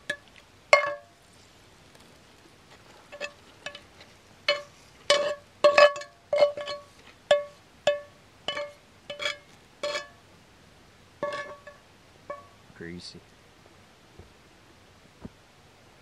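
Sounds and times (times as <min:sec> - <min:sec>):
utensil clinking against dish: 0:04.5 - 0:10.1, 0:11.2 - 0:12.5.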